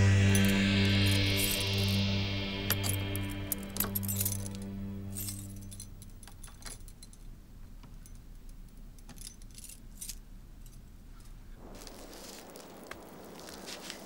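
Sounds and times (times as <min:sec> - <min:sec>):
sustained music: 0:00.0 - 0:06.5
light metallic jingling: 0:00.2 - 0:11.5.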